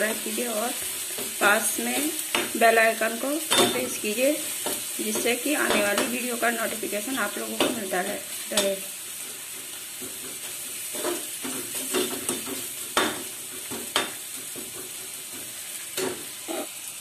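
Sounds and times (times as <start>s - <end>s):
masala sizzling in pan: 0.0s - 17.0s
spatula scraping pan: 7.3s - 16.8s.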